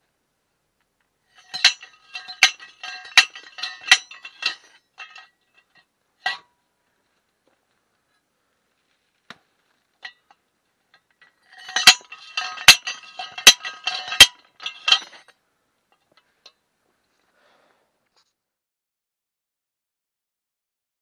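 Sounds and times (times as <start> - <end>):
hammer striking metal pipe: 1.4 - 5.3, 11.5 - 15.2.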